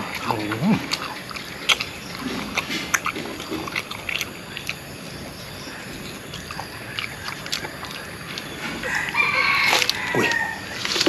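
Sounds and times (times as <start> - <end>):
person chewing: 0.0 - 11.0.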